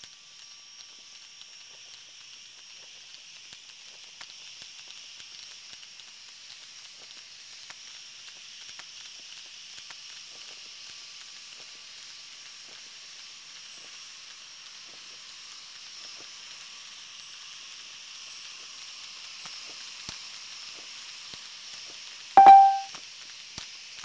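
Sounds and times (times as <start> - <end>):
faint high chirps: 22.4 - 22.9.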